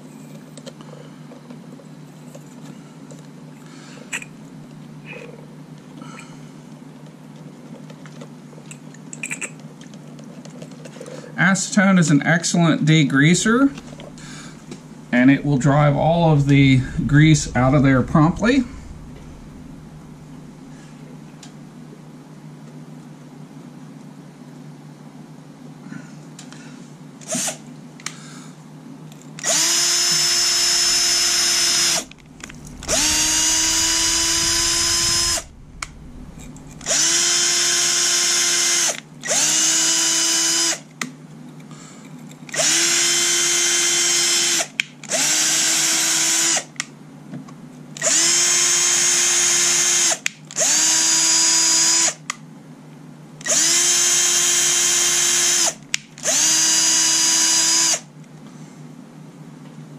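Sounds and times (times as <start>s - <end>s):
cordless drill whining: 29.4s - 35.6s, 36.8s - 40.8s, 42.5s - 46.6s, 48.0s - 52.2s, 53.5s - 58.0s.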